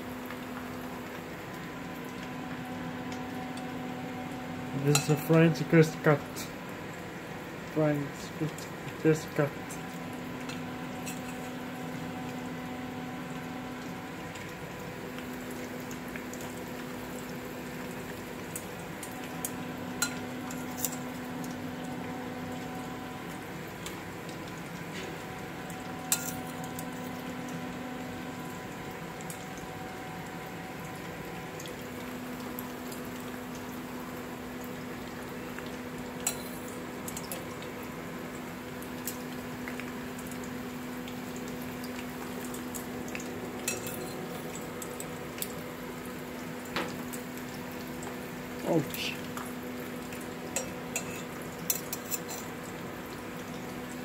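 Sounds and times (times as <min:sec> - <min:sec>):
chips sizzling in oil: 0:00.0 - 0:54.0
utensils clicking on dishes: 0:10.5 - 0:11.5, 0:36.2 - 0:37.5, 0:43.6 - 0:44.4, 0:50.6 - 0:52.5.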